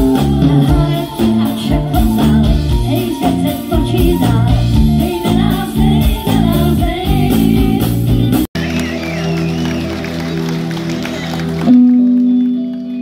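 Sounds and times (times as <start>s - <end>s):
women singing: 0.0s - 8.0s
live pop band playing: 0.0s - 13.0s.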